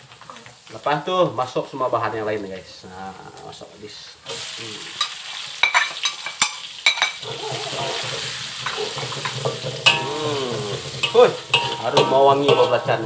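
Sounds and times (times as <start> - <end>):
food sizzling in hot oil: 0.0 - 13.0
spatula scraping a wok: 7.1 - 13.0.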